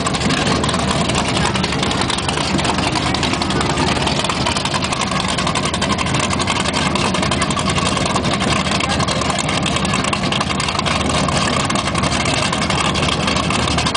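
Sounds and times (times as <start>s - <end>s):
powerboat engines rumbling: 0.0s - 13.9s.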